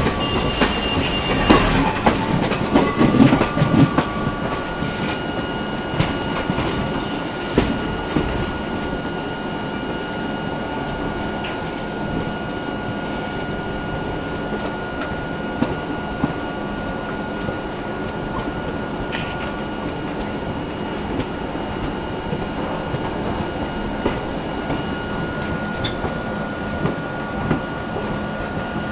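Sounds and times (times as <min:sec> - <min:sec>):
sharp knocks and clanks: 0:00.0 - 0:05.2.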